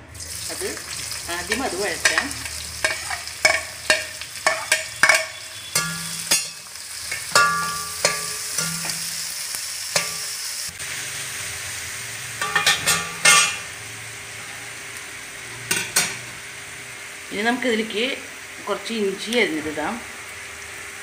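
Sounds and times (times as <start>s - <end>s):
onions sizzling in oil: 0.0s - 21.0s
metal spatula clanking on pan: 1.4s - 9.2s, 9.9s - 10.3s, 12.4s - 13.7s, 15.7s - 16.2s.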